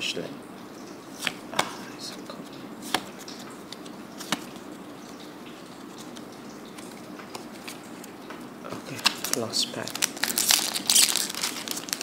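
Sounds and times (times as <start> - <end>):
trading cards sliding: 1.2 - 1.7.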